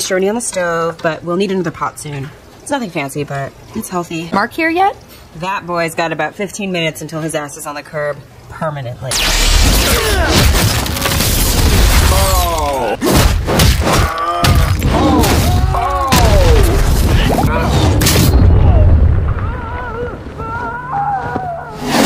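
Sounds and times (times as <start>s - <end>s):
men grunting: 13.8s - 18.0s
booming low rumble: 16.2s - 20.2s.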